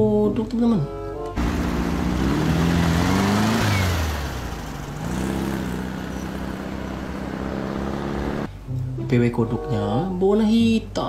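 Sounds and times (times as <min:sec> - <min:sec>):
road noise: 0:01.3 - 0:08.6
car engine driving by: 0:01.4 - 0:08.5.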